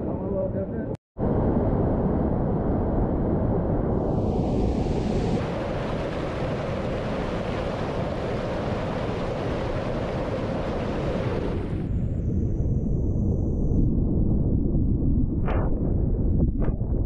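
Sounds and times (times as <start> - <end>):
river water roaring: 5.4 - 11.7.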